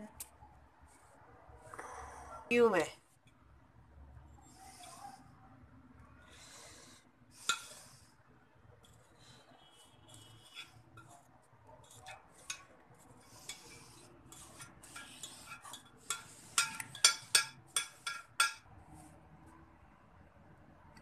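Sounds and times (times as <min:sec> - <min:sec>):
metal utensil knocking on pot: 0:16.1 - 0:18.6.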